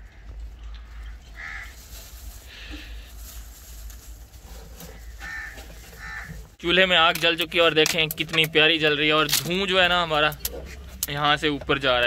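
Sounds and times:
bird cawing: 0.0s - 1.8s, 4.8s - 6.5s.

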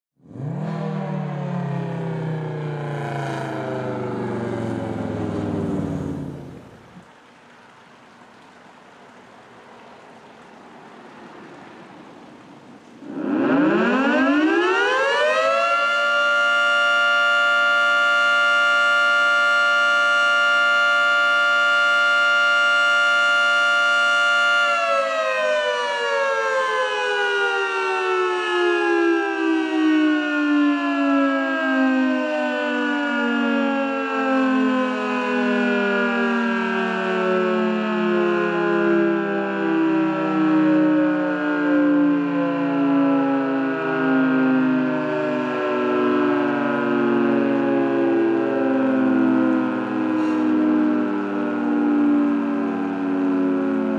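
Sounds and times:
electromechanical siren wailing: 0.2s - 7.0s, 13.0s - 53.9s.

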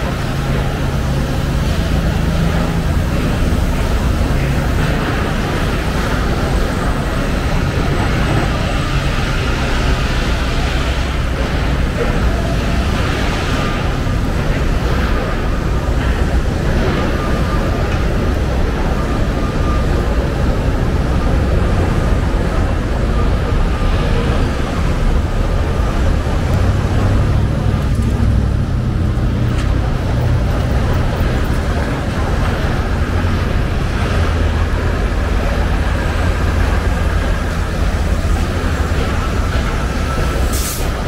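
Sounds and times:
city street traffic rumble: 0.0s - 41.0s.

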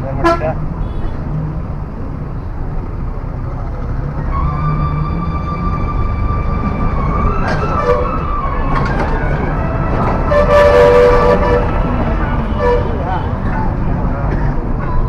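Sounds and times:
engine rumble: 0.0s - 15.0s
vehicle horns: 0.2s - 1.2s, 7.6s - 8.3s, 9.8s - 13.4s.

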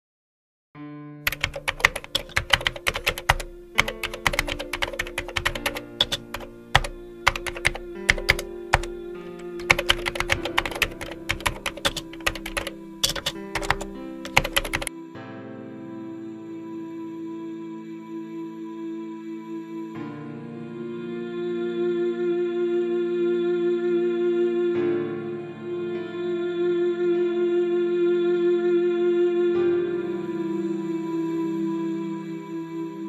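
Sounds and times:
keyboard typing: 1.3s - 14.9s
soft music of held chords: 1.3s - 33.0s.

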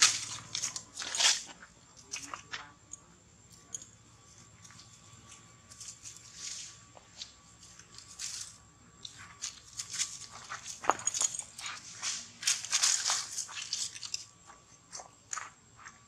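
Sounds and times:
dry leaves crunching and rustling: 0.0s - 1.5s, 11.7s - 14.2s.

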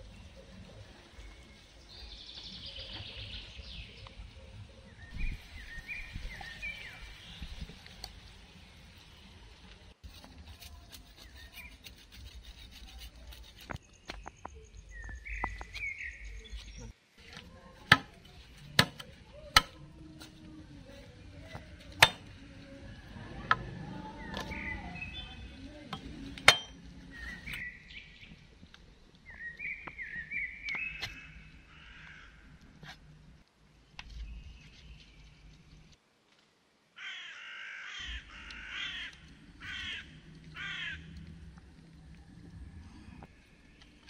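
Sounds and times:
birds chirping: 0.0s - 8.1s, 11.1s - 17.0s, 20.4s - 32.7s, 37.1s - 44.0s
machete chopping branch on wood: 17.8s - 19.8s, 21.5s - 22.3s, 26.0s - 26.8s.

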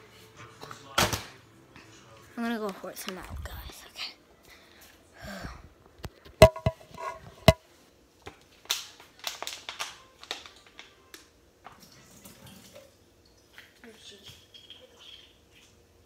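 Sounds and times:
sharp knocks with ring: 6.4s - 7.6s.

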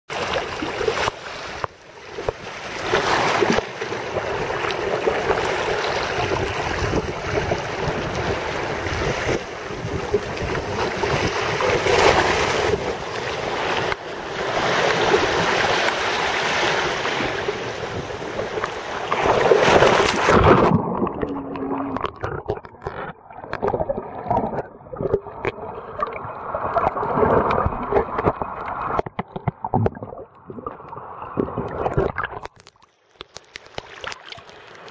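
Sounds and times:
sea washing against rocks: 0.1s - 32.7s
wind on microphone: 5.2s - 13.1s.

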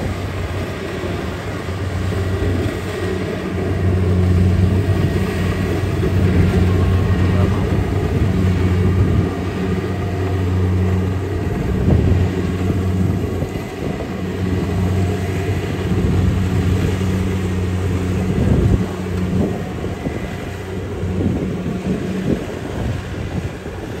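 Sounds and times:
combine harvester diesel engine: 0.0s - 24.0s.

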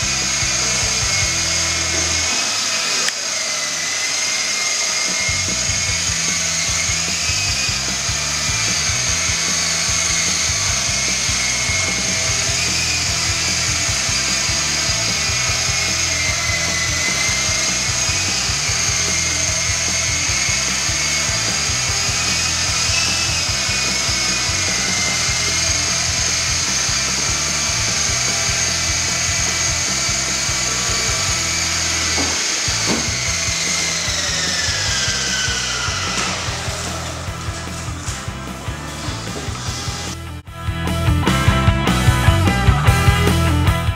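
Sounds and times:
toy helicopter rotors whining: 0.0s - 40.4s.

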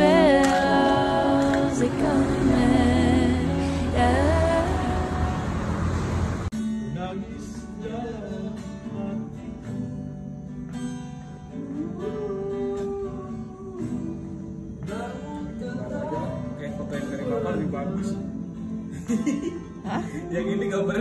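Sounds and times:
person singing: 0.0s - 6.0s
acoustic guitar strumming: 0.0s - 21.0s.

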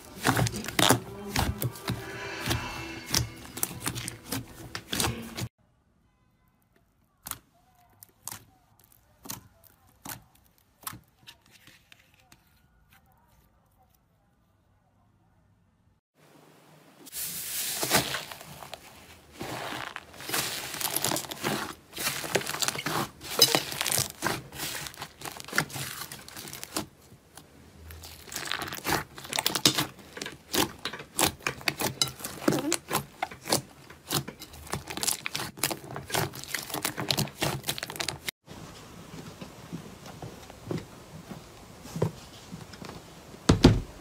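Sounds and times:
slime crackling and popping: 7.2s - 11.2s, 19.4s - 38.3s.

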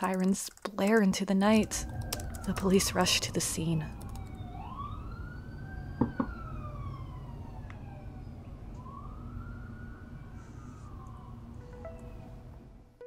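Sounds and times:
steady low rumble: 1.4s - 9.6s
police siren wailing: 1.5s - 13.0s
sharp clicks: 2.0s - 2.6s.

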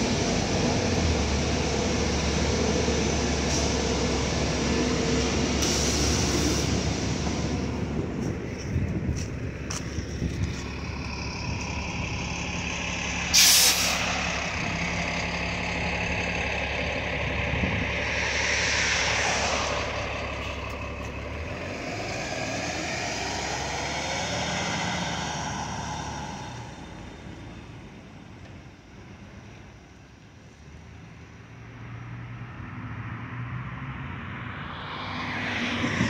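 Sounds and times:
bus engine accelerating: 0.0s - 36.0s
air brakes hissing: 3.4s - 4.1s, 5.5s - 7.2s, 13.3s - 14.3s.

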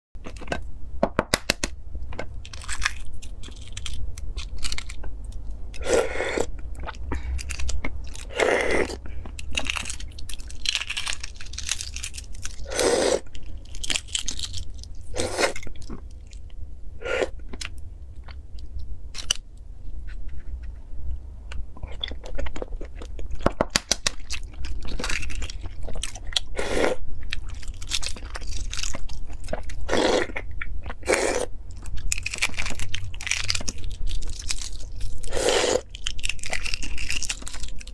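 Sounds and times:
eggshells cracking and peeling: 1.2s - 5.9s, 6.6s - 16.5s, 21.9s - 26.6s, 27.2s - 31.1s, 31.8s - 37.9s
crunchy bites and chewing: 5.8s - 16.5s, 21.8s - 37.9s.

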